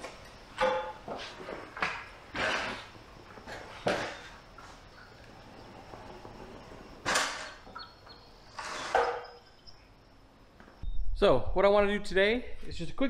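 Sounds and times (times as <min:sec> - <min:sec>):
bike scraping on concrete: 0:01.0 - 0:09.4.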